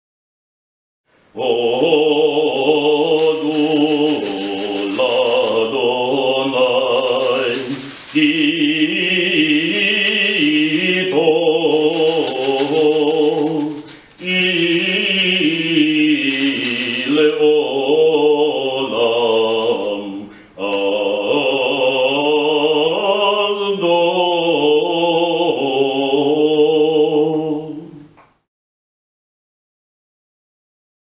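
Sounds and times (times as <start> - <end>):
man chanting: 1.4 - 28.1
palm branch rattling rustle: 2.8 - 18.0, 18.9 - 20.2.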